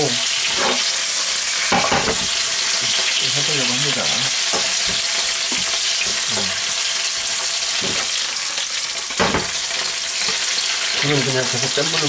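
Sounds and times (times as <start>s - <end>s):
onions sizzling in oil: 0.0s - 12.0s
spatula knocking and scraping pan: 1.7s - 3.1s, 4.4s - 6.7s, 7.8s - 8.2s.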